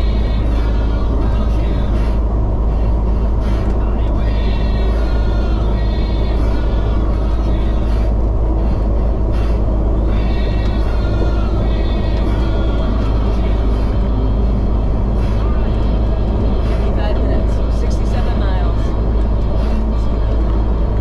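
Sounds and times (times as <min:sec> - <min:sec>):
vehicle rumbling at highway speed: 0:00.0 - 0:21.0.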